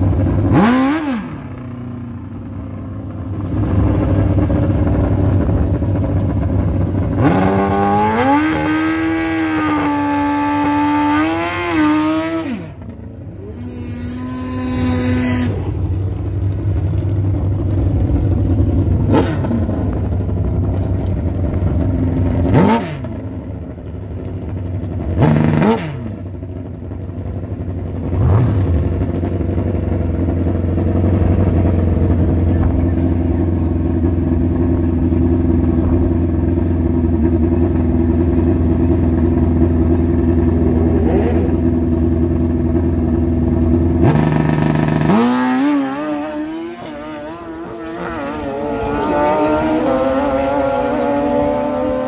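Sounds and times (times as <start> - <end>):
motorcycle engines revving: 0.0 - 52.0
motorcycles accelerating away: 0.0 - 52.0.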